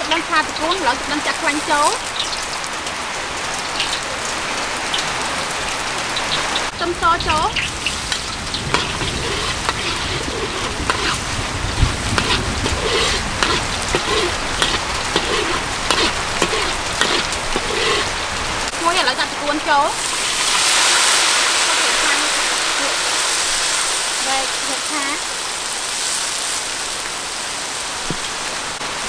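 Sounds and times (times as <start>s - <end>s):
food sizzling in hot oil: 0.0s - 2.8s, 4.9s - 29.0s
metal spatula stirring in wok: 7.8s - 18.1s.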